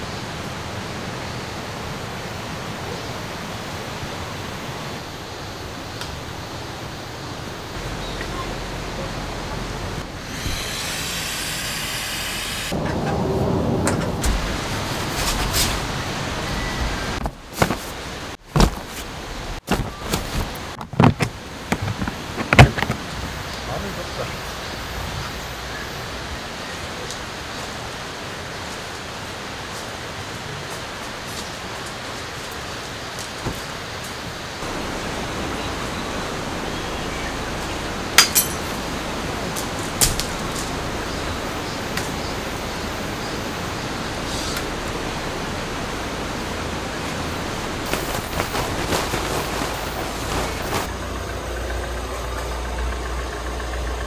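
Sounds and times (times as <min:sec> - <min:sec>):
steady outdoor hiss: 0:00.0 - 0:54.0
creek rushing: 0:14.1 - 0:51.2
gear bags knocking and thudding: 0:17.2 - 0:23.1, 0:47.9 - 0:50.9.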